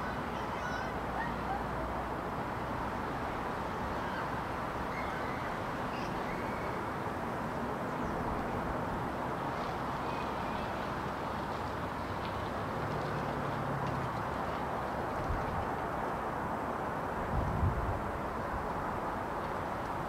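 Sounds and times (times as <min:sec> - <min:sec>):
outdoor hiss and rumble: 0:00.0 - 0:20.0
faint bird chirps: 0:04.9 - 0:06.8.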